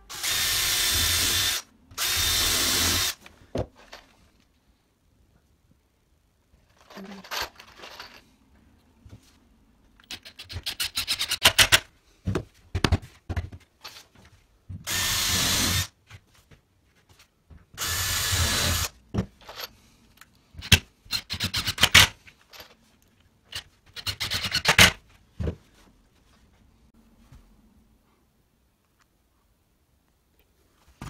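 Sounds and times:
cordless drill motor running: 0:00.1 - 0:03.2, 0:14.9 - 0:15.9, 0:17.8 - 0:18.9.

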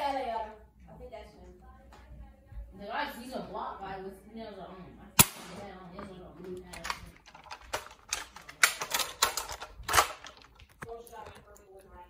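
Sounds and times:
toy blaster plastic clacks: 0:06.7 - 0:10.9.

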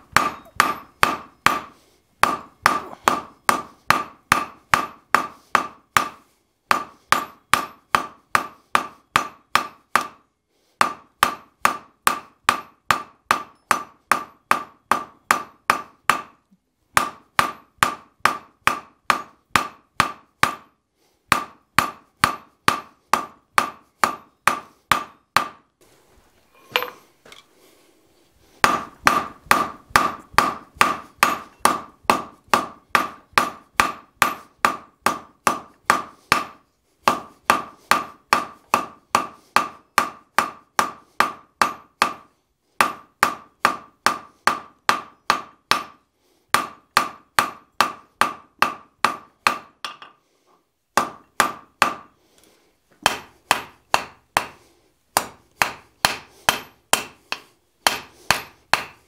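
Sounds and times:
hammer ringing on anvil: 0:00.2 - 0:01.6, 0:26.7 - 0:27.0.

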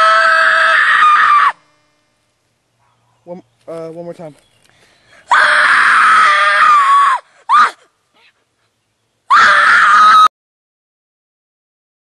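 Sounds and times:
boy screaming: 0:00.0 - 0:01.7, 0:05.2 - 0:08.4, 0:09.3 - 0:10.3.

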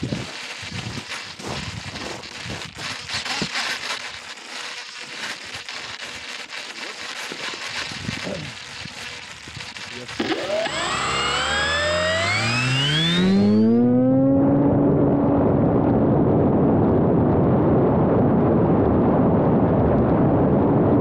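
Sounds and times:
crackling and rustling handling noise: 0:00.0 - 0:10.9
scattered clicks: 0:00.0 - 0:13.7
propeller motor whine: 0:00.0 - 0:17.4.

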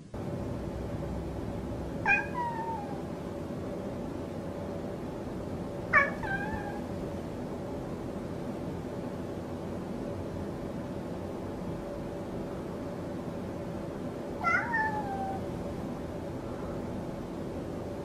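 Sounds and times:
cat meowing: 0:02.0 - 0:03.1, 0:05.9 - 0:06.9, 0:14.4 - 0:15.5.

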